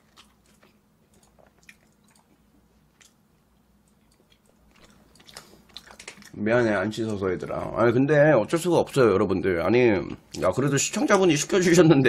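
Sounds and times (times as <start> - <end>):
wet mouth clicks: 0.0 - 6.4
faint chewing: 0.0 - 7.7.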